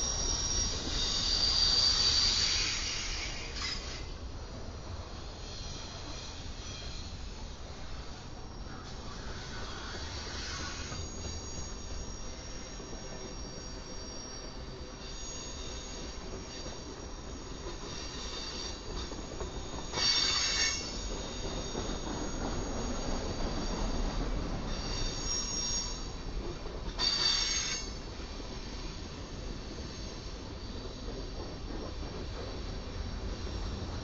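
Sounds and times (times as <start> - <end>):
high-pitched wheel squeal: 0.0 - 4.1, 8.6 - 26.3, 27.0 - 31.0
train wheels rumbling on rails: 0.0 - 34.0.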